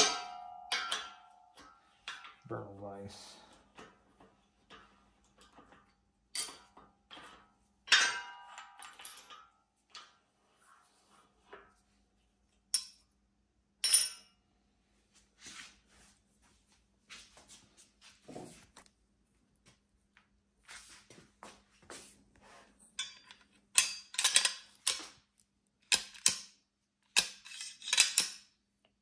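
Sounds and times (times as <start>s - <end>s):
metal clanks and clinks: 0.0s - 2.5s, 4.6s - 10.2s, 13.8s - 14.4s, 22.9s - 25.2s, 25.9s - 28.5s.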